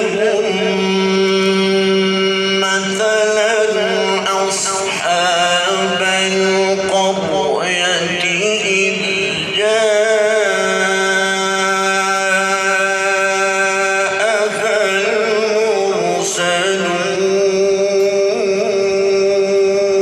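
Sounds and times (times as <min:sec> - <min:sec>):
man reciting melodically: 0:00.0 - 0:20.0.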